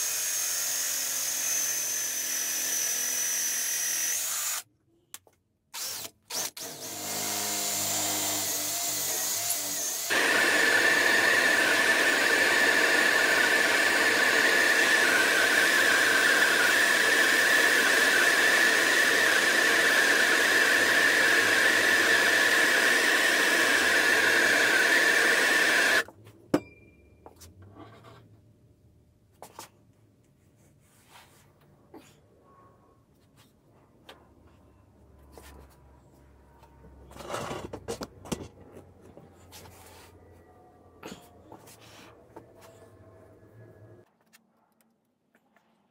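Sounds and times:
blowtorch hissing: 10.1s - 15.4s, 22.9s - 26.0s.

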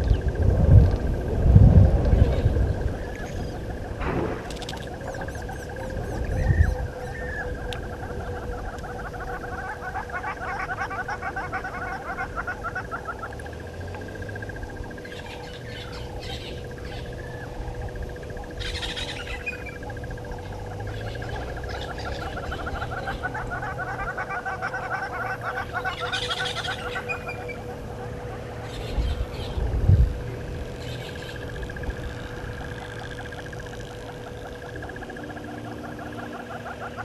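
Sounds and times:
faint steady hum: 0.0s - 37.0s
bird calls: 1.8s - 37.0s
fast trilling chorus: 2.3s - 37.0s.

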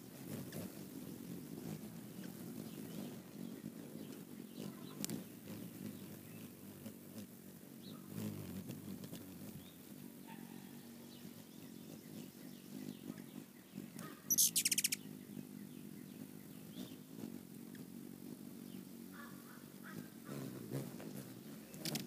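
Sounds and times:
hummingbird wings humming: 0.0s - 22.0s
high sharp chittering calls: 13.9s - 17.0s.

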